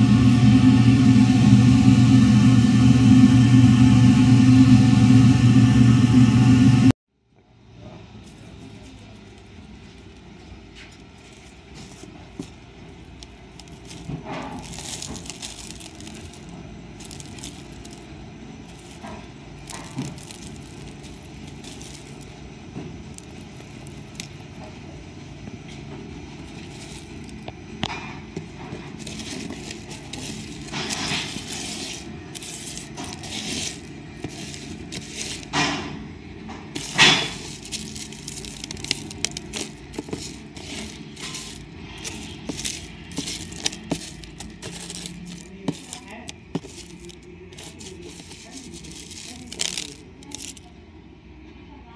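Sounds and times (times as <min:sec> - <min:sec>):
low steady hum: 0:00.0 - 0:51.9
chaff scraping on plastic tray: 0:29.0 - 0:35.6, 0:36.8 - 0:50.6.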